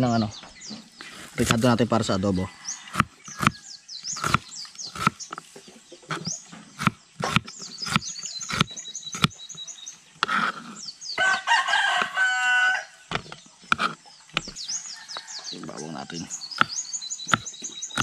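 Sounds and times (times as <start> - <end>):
high chirping calls: 0.0 - 18.0
rooster crowing: 2.4 - 3.7, 11.2 - 13.0
knife chopping on plastic board: 2.9 - 3.6, 4.2 - 5.2, 6.1 - 9.4, 13.1 - 14.6, 16.6 - 18.0.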